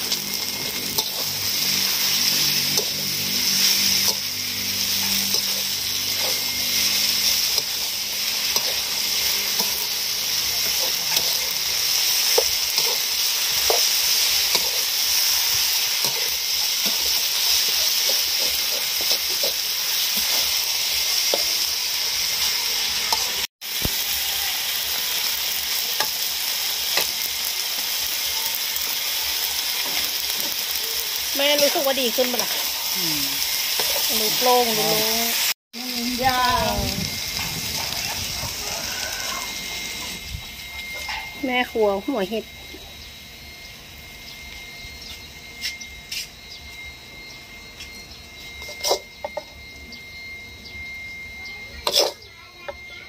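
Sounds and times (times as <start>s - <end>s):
food sizzling in a wok: 0.0s - 53.0s
metal spatula scraping a pan: 0.2s - 23.5s, 48.6s - 49.4s, 51.8s - 52.3s.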